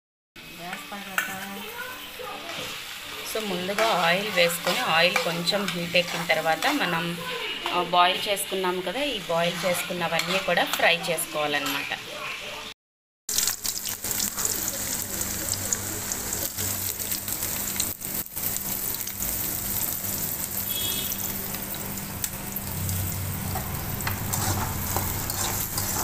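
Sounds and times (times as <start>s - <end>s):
onions sizzling in hot oil: 0.4s - 12.6s, 13.3s - 26.0s.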